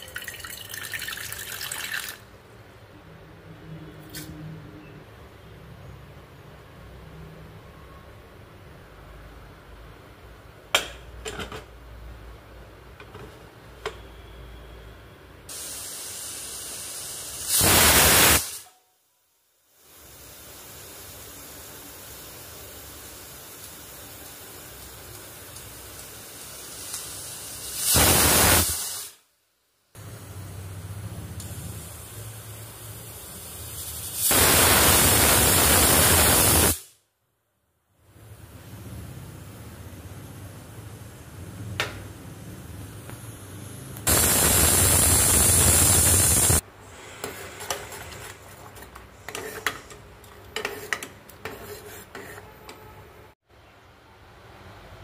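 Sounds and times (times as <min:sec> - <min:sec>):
pressure cooker steam hissing: 0:15.5 - 0:18.8, 0:19.8 - 0:29.2, 0:30.0 - 0:37.0, 0:42.4 - 0:50.0
metal spoon scraping pot: 0:47.2 - 0:52.8.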